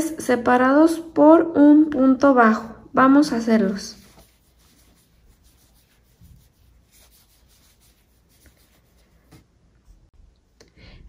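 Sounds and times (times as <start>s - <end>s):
yarn rustling on crochet hook: 3.6s - 10.0s.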